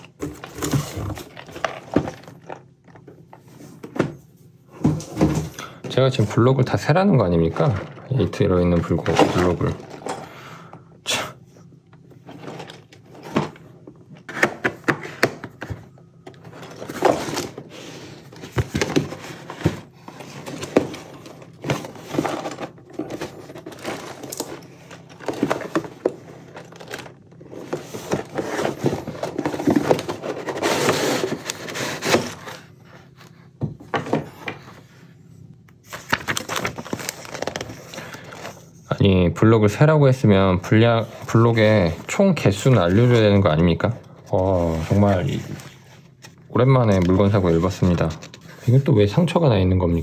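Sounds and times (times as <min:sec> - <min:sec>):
packaging rustling: 0:15.6 - 0:32.8, 0:35.8 - 0:38.8.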